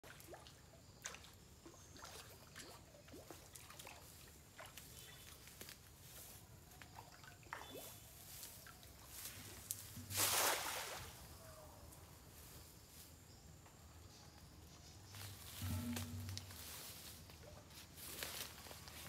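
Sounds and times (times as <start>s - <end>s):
water dripping and trickling: 0.0s - 10.9s.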